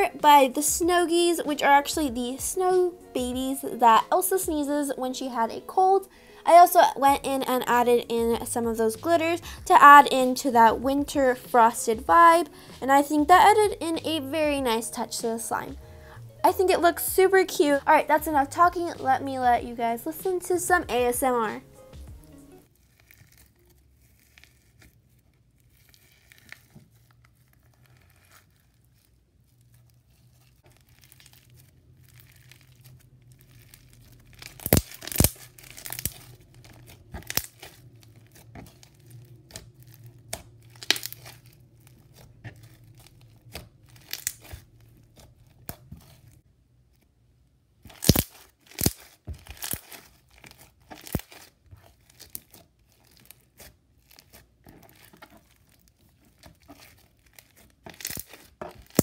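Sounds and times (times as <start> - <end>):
slime crackling and crunching: 22.6 - 47.1, 47.8 - 59.0.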